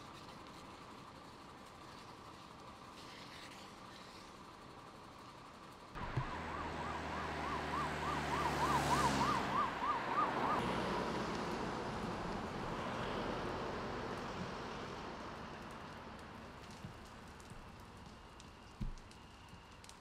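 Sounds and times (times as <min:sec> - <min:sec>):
vehicle engine and tyre noise: 0:00.0 - 0:20.0
siren wailing: 0:06.0 - 0:12.1.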